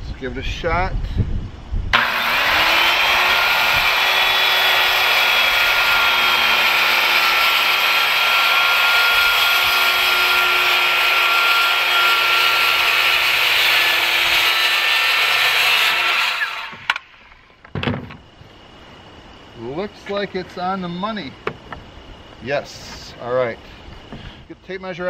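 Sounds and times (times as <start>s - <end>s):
circular saw cutting wood: 2.0s - 17.1s.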